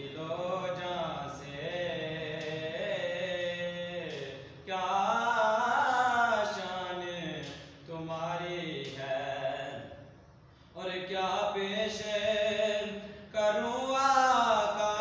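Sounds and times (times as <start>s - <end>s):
man chanting melodic recitation: 0.0s - 10.1s, 10.8s - 15.0s.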